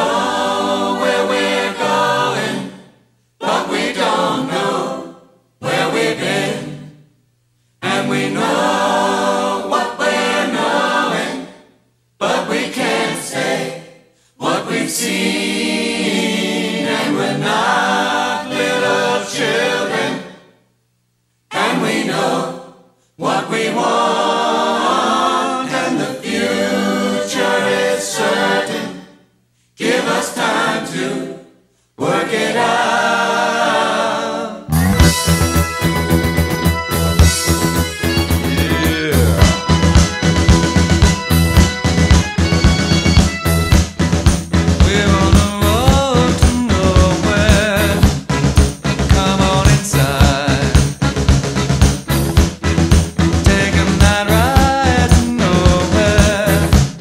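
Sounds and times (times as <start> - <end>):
choir singing: 0.0 - 7.0, 7.8 - 20.6, 21.5 - 43.2, 53.4 - 57.0.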